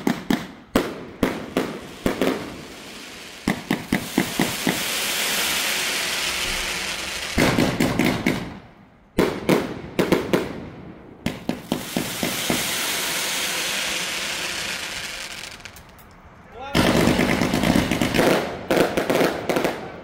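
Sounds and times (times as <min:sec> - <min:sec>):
fireworks cracks and pops: 0:01.2 - 0:08.5, 0:11.3 - 0:16.2, 0:16.8 - 0:19.7
fireworks sparks hissing: 0:01.5 - 0:08.0, 0:11.5 - 0:16.0
loud firework bang: 0:06.2 - 0:08.5.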